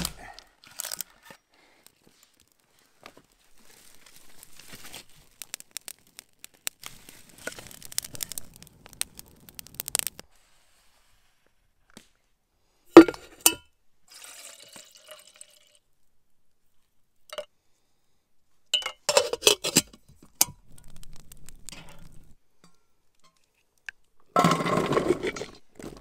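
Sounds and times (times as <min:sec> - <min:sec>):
liquid pouring into kettle: 0:14.1 - 0:15.8
spices clinking into pot: 0:18.7 - 0:20.7.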